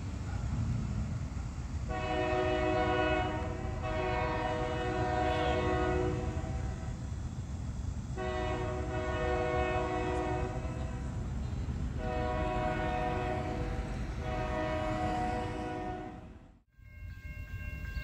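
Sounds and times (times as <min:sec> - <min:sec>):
low rumble of train: 0:00.0 - 0:18.0
locomotive air horn blasts: 0:01.9 - 0:07.0, 0:08.2 - 0:11.2, 0:12.0 - 0:16.6.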